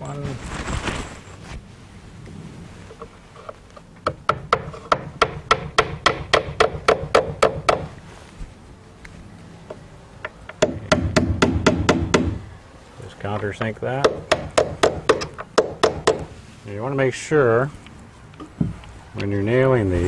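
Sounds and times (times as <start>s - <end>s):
hammer driving nail into wood: 14.1s - 16.3s.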